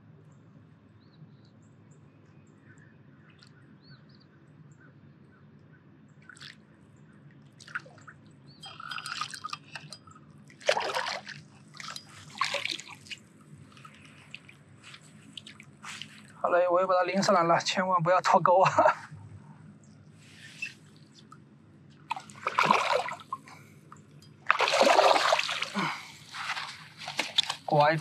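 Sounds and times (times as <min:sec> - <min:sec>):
faint bird chirps: 0:00.3 - 0:06.2, 0:19.8 - 0:21.4
fish splashing in water: 0:06.2 - 0:06.6, 0:07.6 - 0:16.4, 0:22.0 - 0:23.6, 0:24.4 - 0:27.7.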